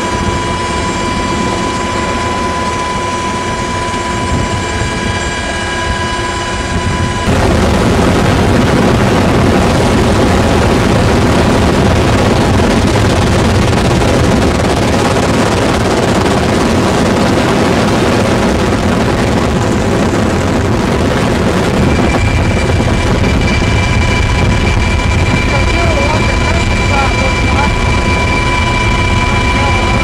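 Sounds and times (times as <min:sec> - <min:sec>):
helicopter rotor and turbine: 0:00.0 - 0:30.0
thin steady whine: 0:00.0 - 0:30.0
rushing air: 0:06.7 - 0:30.0.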